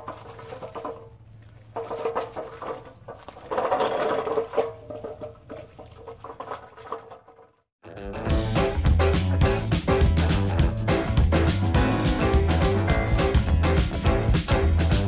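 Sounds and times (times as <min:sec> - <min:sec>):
wheels crunching on gravel: 0:00.0 - 0:07.4.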